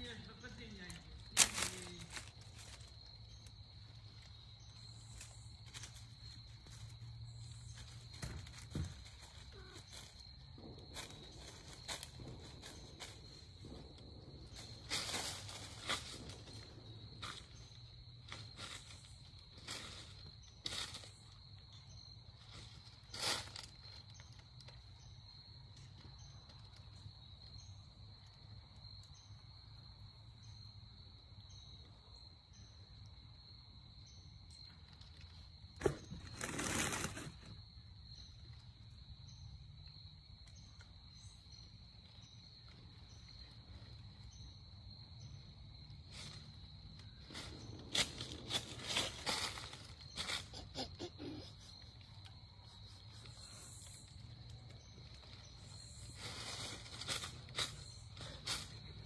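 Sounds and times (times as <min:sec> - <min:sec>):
rustles: 0:00.0 - 0:25.2, 0:34.6 - 0:39.5, 0:45.8 - 0:59.0
crickets trilling and chirping: 0:00.0 - 0:59.0.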